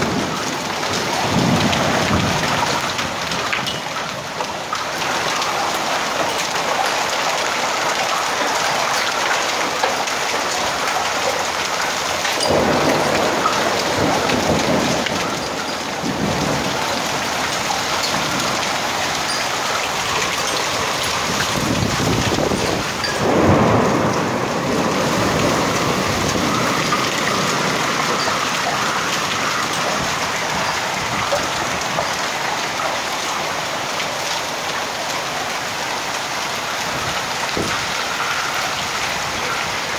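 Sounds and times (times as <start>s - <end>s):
thunder rumbling: 0.0s - 4.4s, 12.3s - 32.1s
hailstones pattering: 0.0s - 39.9s
heavy rain and hail: 0.0s - 39.9s.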